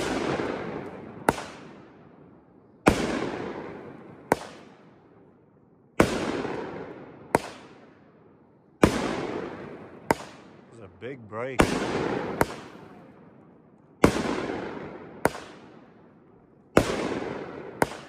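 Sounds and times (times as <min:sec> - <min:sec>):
firework reports: 0:10.4 - 0:13.3.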